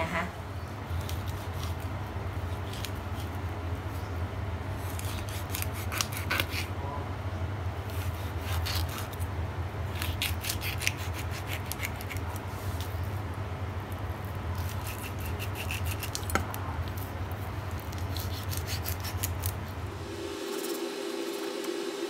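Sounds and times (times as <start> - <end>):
knife scraping through fish bones: 4.9 - 6.7, 10.0 - 12.4, 14.6 - 17.1, 17.7 - 19.6
steady low hum: 10.9 - 22.0.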